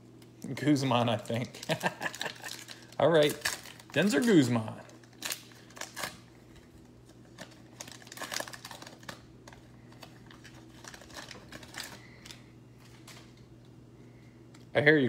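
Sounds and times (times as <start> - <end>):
faint low hum: 0.0 - 15.0
card pack wrapper crinkling: 1.2 - 13.5.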